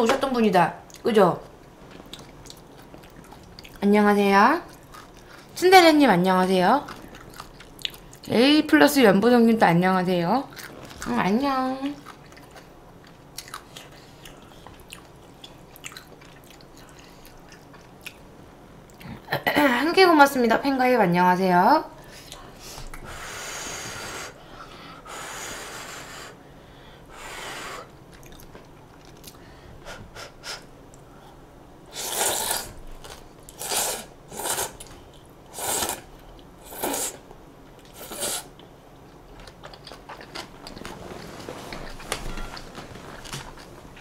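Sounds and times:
mouth eating noodles: 0:31.9 - 0:34.9, 0:35.5 - 0:37.2, 0:37.8 - 0:38.6.

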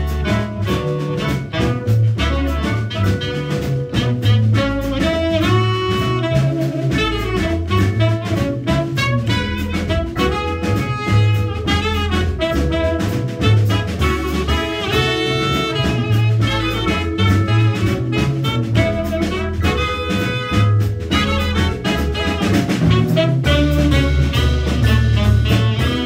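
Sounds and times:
drum kit: 0:00.0 - 0:26.0
saxophone: 0:00.0 - 0:26.0
trumpet: 0:00.0 - 0:26.0
walking upright bass: 0:00.0 - 0:26.0.

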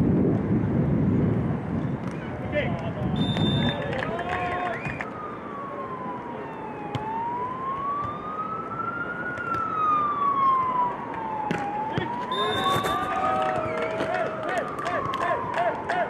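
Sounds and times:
siren wailing: 0:04.5 - 0:16.0.

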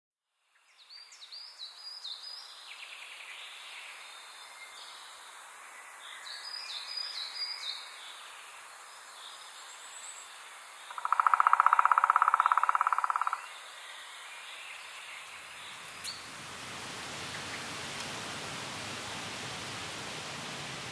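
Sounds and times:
birds chirping: 0:10.9 - 0:19.9
steady soft hiss: 0:13.5 - 0:20.9.

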